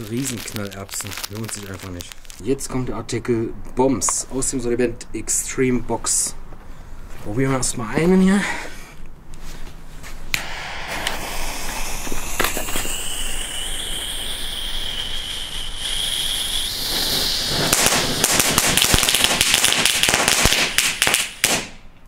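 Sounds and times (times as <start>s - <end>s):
firework fountain hissing: 0.0s - 2.4s, 10.4s - 21.7s
firework crackling: 0.0s - 2.6s, 10.3s - 21.8s.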